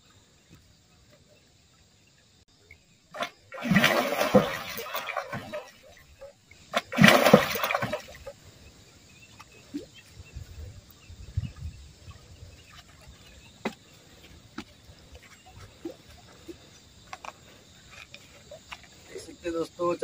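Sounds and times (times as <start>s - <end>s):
fish splashing at water surface: 3.1s - 8.4s
faint ticks and taps: 17.0s - 17.4s.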